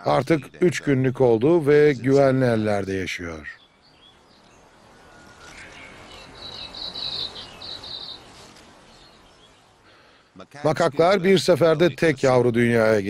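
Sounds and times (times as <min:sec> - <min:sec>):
forest ambience: 0:00.0 - 0:13.0
high pulsing chirp: 0:03.5 - 0:08.3.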